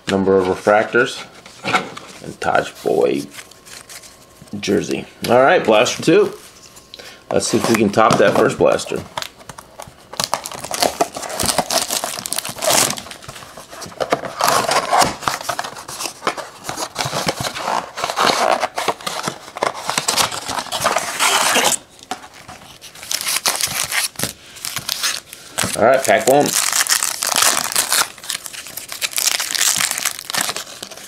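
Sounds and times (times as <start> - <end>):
foil packs crinkling: 7.3 - 31.0
cardboard box tearing: 10.2 - 13.1, 14.0 - 21.8, 24.8 - 31.0.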